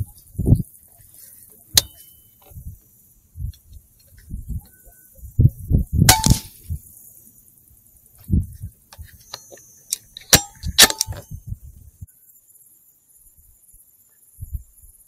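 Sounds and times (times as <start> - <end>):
sharp metallic clanks: 1.8 - 2.2, 6.1 - 6.6, 9.2 - 11.3.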